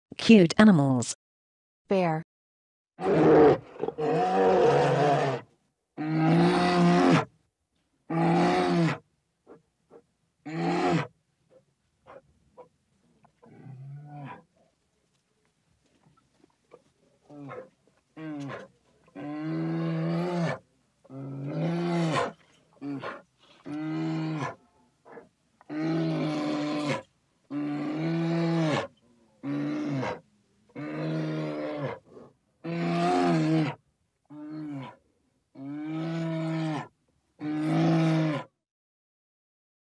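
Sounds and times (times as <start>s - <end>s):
bear roaring: 3.0s - 7.3s, 25.7s - 30.2s, 30.8s - 35.0s, 35.6s - 38.5s.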